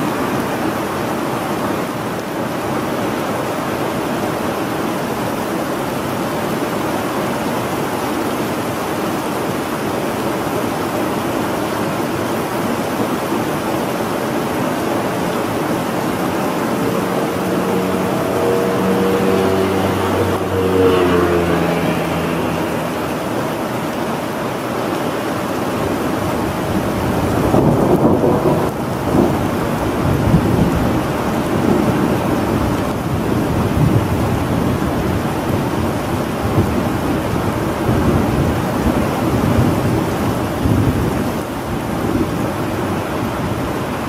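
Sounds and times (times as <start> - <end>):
steady rain: 0.0 - 44.0
rolling thunder: 26.7 - 34.8.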